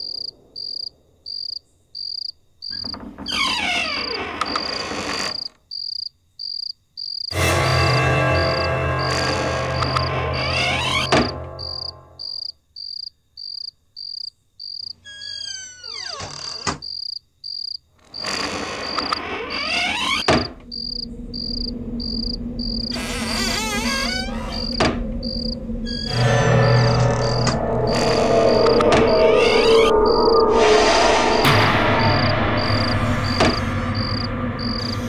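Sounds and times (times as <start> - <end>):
crickets chirping: 0.0 - 35.0
low drone: 7.3 - 12.2, 20.5 - 35.0
sharp hits: 7.3 - 12.2, 25.1 - 35.0
descending glide: 20.6 - 35.0
rising sweeps: 20.6 - 35.0.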